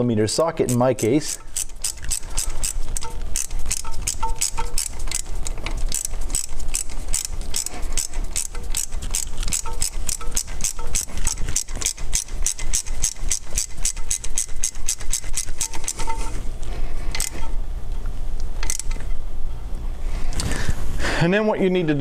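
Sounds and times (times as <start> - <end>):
steady low hum: 0.0 - 22.0
ratchet clicking: 0.6 - 16.4, 17.1 - 17.5, 18.6 - 19.1.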